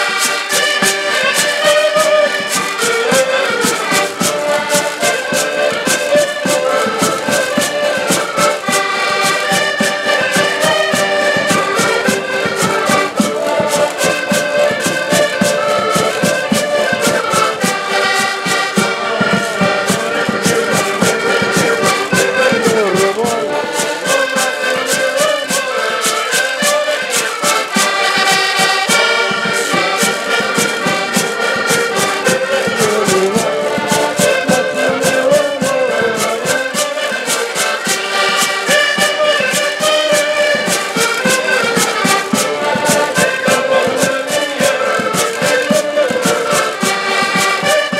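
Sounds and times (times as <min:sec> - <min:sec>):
accordions playing folk tune: 0:00.0 - 0:47.9
rhythmic percussion clatter: 0:00.0 - 0:47.9
strummed guitar: 0:00.0 - 0:47.9.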